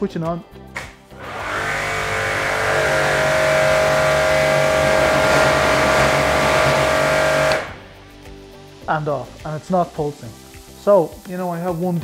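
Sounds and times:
pressure washer motor and pump: 1.2 - 7.9
water jet hissing: 1.2 - 8.2, 10.3 - 12.0.

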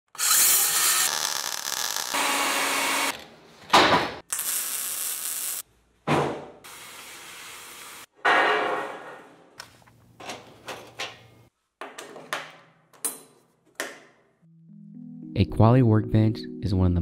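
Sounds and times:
circular saw cutting steel: 0.1 - 3.1.

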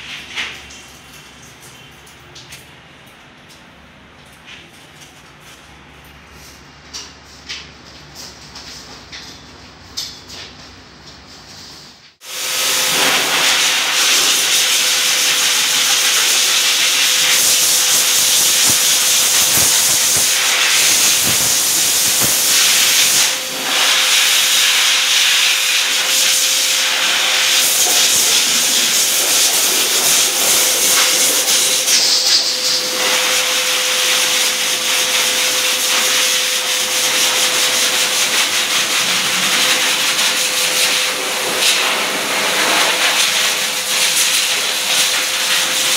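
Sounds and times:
blower dryer rushing air: 12.2 - 45.9.

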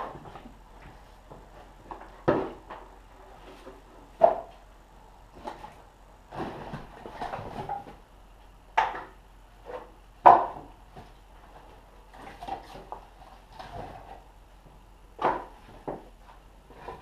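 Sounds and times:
firewood knocking and clattering: 0.0 - 2.9, 8.8 - 17.0.

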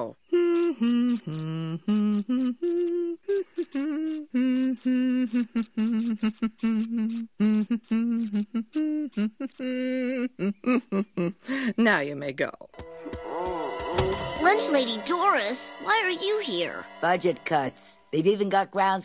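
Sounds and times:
woman humming: 0.2 - 11.6, 13.0 - 14.7.

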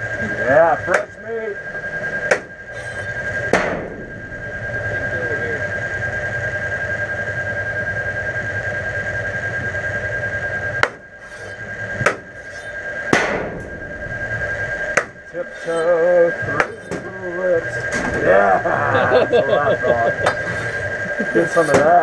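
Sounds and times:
pulsing hum: 0.0 - 22.0
short wavering cry: 2.7 - 3.3, 11.2 - 11.8, 12.4 - 12.9
loud sharp bangs: 3.3 - 4.6, 13.0 - 15.3
thin high tone: 13.7 - 21.7.

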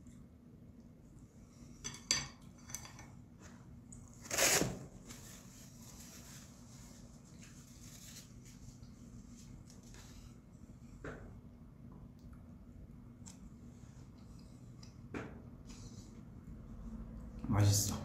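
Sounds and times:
paper tissue rustling: 4.2 - 10.4.

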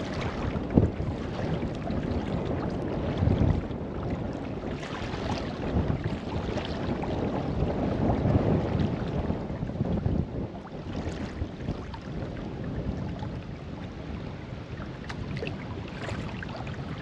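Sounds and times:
kayak paddle splashing: 0.0 - 7.2, 14.8 - 17.0
water washing along hull: 0.0 - 17.0
wind rumbling on microphone: 0.0 - 17.0.

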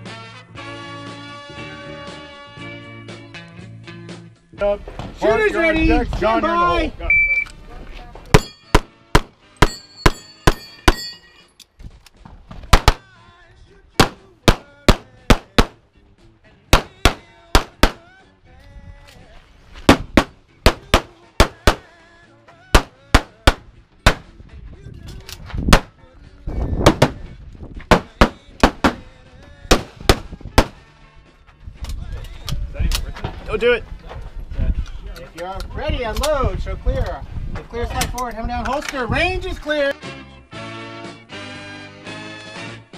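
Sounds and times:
steel targets ringing: 8.4 - 8.8, 9.6 - 11.5
pistol shots: 8.4 - 11.0, 12.7 - 13.1, 14.0 - 15.8, 16.7 - 18.1, 19.9 - 21.9, 22.8 - 24.3, 29.7 - 30.8.

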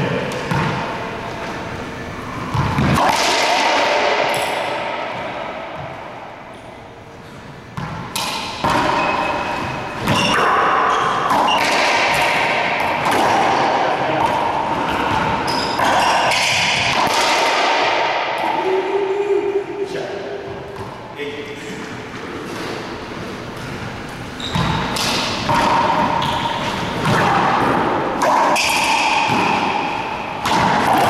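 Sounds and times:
racquetball hits echoing in court: 0.0 - 31.0
ball rebounding off walls: 2.4 - 6.2, 7.8 - 18.5, 24.5 - 31.0.

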